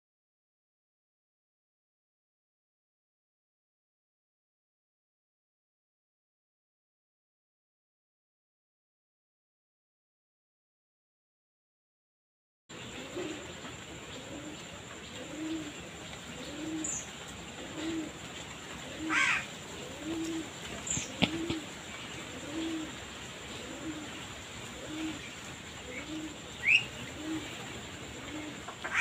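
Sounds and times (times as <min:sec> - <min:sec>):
bird cooing: 0:12.8 - 0:29.0.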